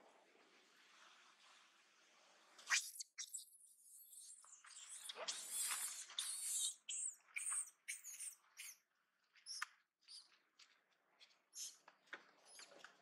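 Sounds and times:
monkey squeaking and squealing: 0:02.7 - 0:08.8, 0:09.4 - 0:10.2, 0:11.5 - 0:11.8.

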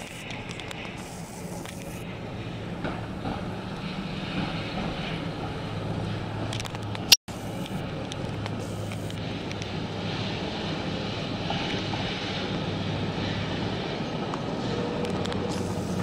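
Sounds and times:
distant tram running: 0:00.0 - 0:16.0
traffic hum and rumble: 0:00.0 - 0:16.0.

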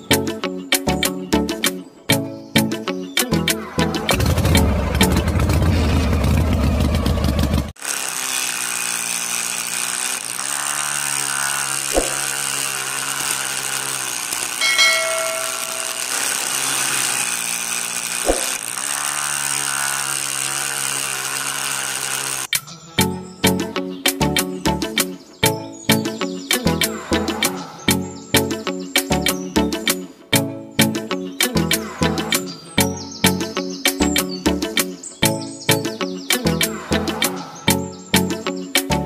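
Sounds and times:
music: 0:00.0 - 0:05.5, 0:23.0 - 0:39.0
electric motor whining: 0:03.9 - 0:23.4.

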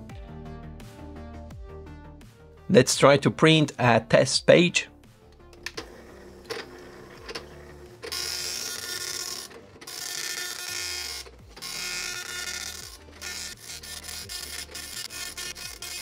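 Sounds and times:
dot-matrix printer printing: 0:05.6 - 0:16.0.

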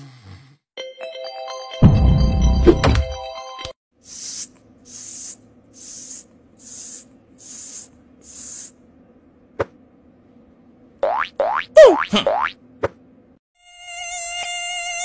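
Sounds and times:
short hissing puffs: 0:04.0 - 0:08.8.

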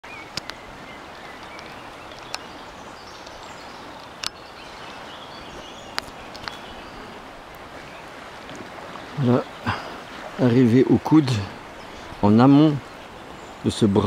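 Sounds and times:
faint birdsong: 0:00.0 - 0:14.0
river current rushing: 0:00.0 - 0:14.0.

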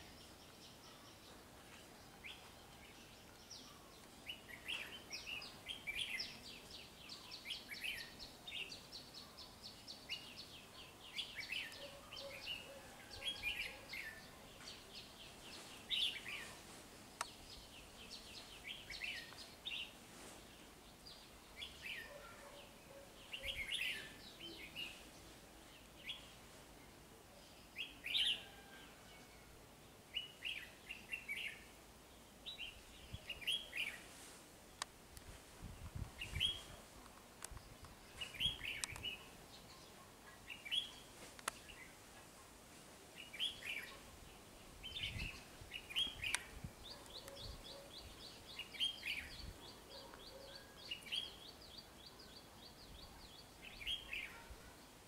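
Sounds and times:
birds chirping and warbling: 0:00.0 - 0:34.9, 0:35.6 - 0:42.6, 0:43.2 - 0:55.0.

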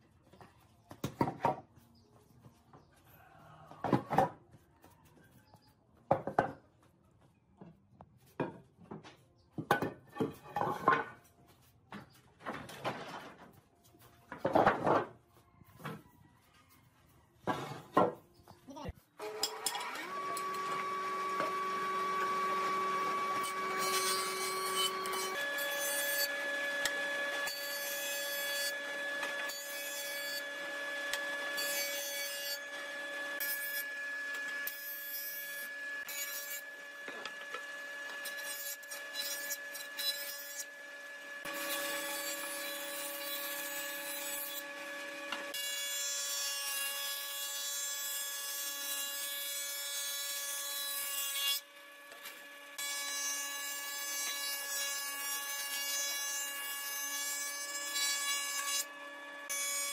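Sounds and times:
cutter head planing wood: 0:19.2 - 0:59.9
jointer-planer motor humming: 0:19.3 - 0:23.8.

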